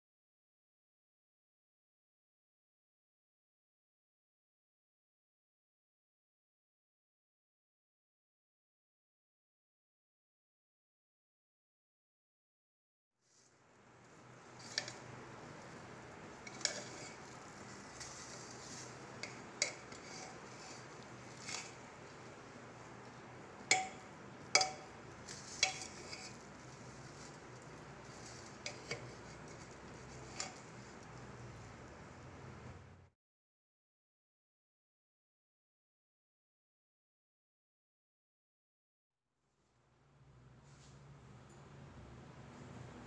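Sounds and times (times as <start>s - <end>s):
metal ladle stirring rice in pot: 14.2s - 31.9s
ladle clinking against metal pot: 18.0s - 20.6s, 23.6s - 26.4s, 28.6s - 29.3s.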